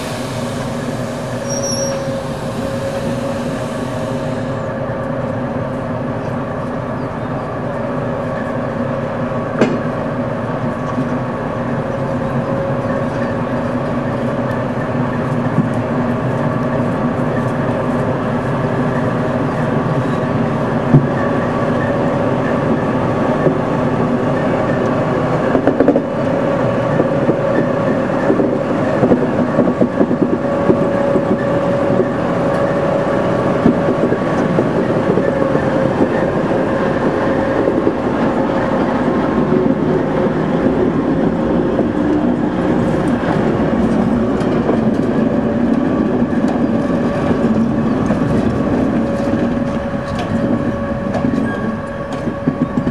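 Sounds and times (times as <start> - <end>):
diesel locomotive engine running: 0.0 - 52.9
wheels clicking on rail joints: 18.8 - 52.9.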